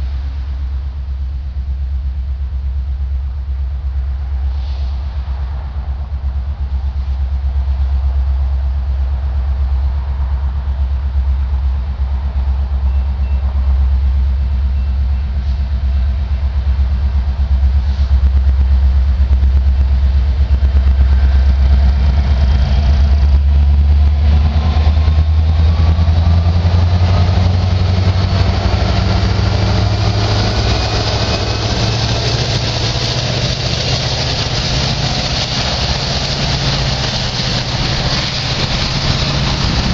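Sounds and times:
locomotive diesel engine rumble: 0:00.0 - 0:39.9
rising whine: 0:14.0 - 0:39.9.

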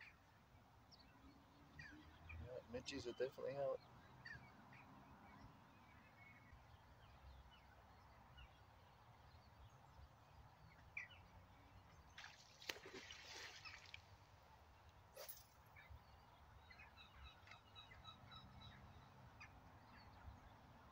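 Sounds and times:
rustle: 0:12.1 - 0:15.9.

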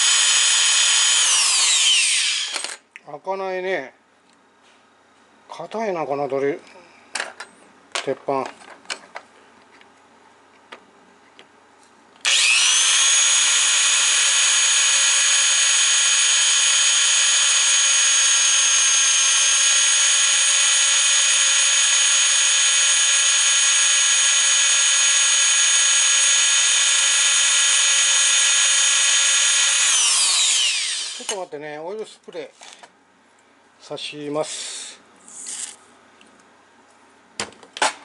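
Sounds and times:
electric drill on steel: 0:00.0 - 0:02.8, 0:12.2 - 0:31.4.

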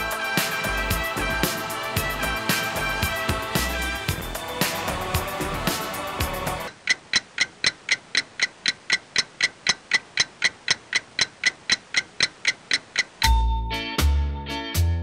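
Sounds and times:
music with heavy bass: 0:00.0 - 0:06.7, 0:13.3 - 0:15.0
clock-like ticking: 0:00.0 - 0:13.9.

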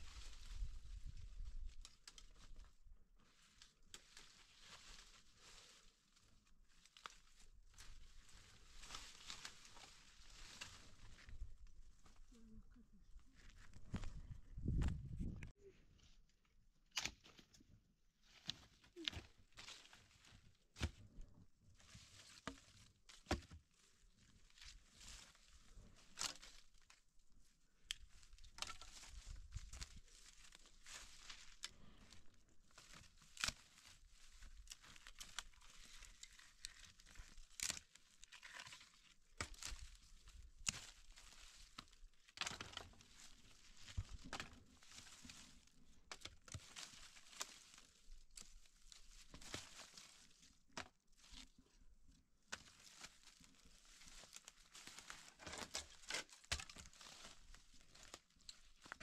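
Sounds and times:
twigs crackling and snapping: 0:00.0 - 0:12.2, 0:18.2 - 0:21.0, 0:21.8 - 0:27.1, 0:27.8 - 0:51.7, 0:52.5 - 0:59.0.

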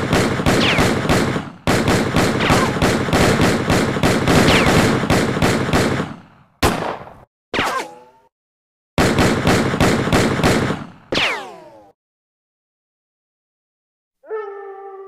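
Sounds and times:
rapid gunshots: 0:00.0 - 0:08.0, 0:09.0 - 0:12.0.

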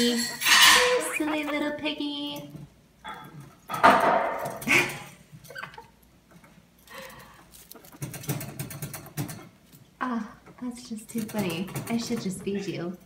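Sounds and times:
guinea pig squeaking: 0:00.0 - 0:02.3, 0:07.6 - 0:09.5.

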